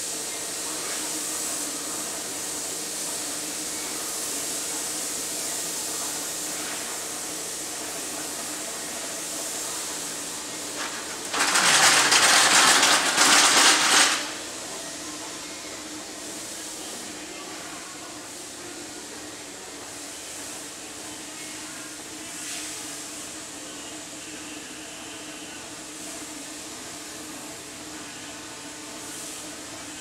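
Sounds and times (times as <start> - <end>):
faint machine hum: 0.0 - 30.0.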